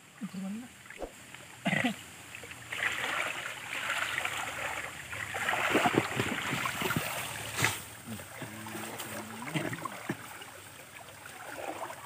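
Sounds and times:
water sloshing and splashing: 0.8s - 12.0s.

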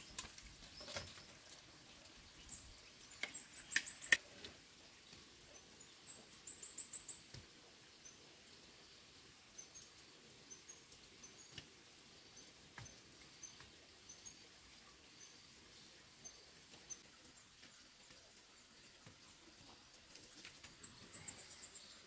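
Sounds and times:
small bird chirping: 2.3s - 4.2s, 5.5s - 7.4s, 19.2s - 22.0s.

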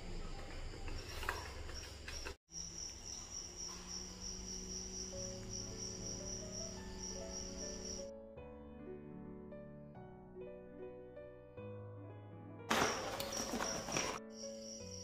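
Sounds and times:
crickets chirping: 0.0s - 8.1s, 12.7s - 15.0s
soft sustained music notes: 3.7s - 12.6s.

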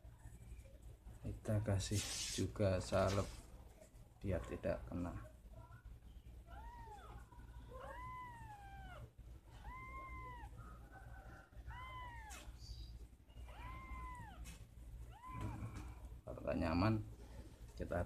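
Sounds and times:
kitten meowing: 6.5s - 10.6s, 11.6s - 16.0s.

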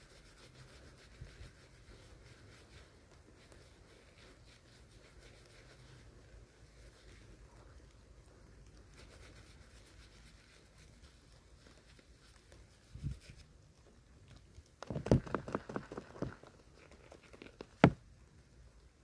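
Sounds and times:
handling thump on microphone: 17.8s - 18.0s.

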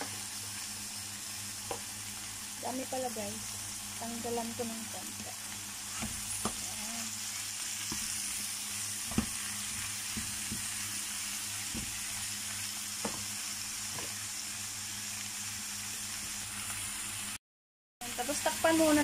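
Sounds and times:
greens sizzling in oil: 0.0s - 17.4s, 18.0s - 19.0s
spatula knocking against pan: 11.7s - 12.0s.

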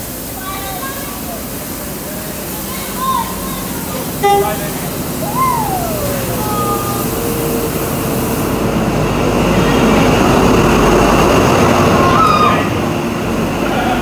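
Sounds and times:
diesel train passing: 0.0s - 14.0s
short falling whine: 4.2s - 8.5s.

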